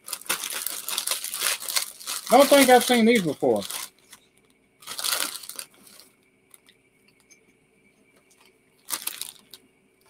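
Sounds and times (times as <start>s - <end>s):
crisp packet crinkling: 0.0s - 4.2s, 4.8s - 6.7s, 8.8s - 9.6s.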